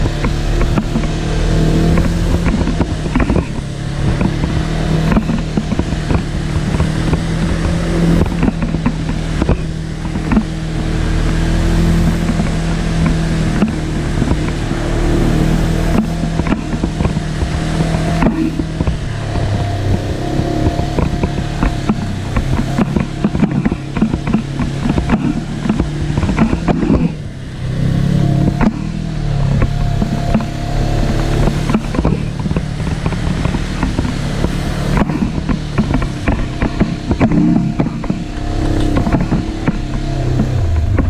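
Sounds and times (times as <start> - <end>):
utv engine running: 0.0 - 41.0
chassis knocking over rocks: 15.9 - 27.2.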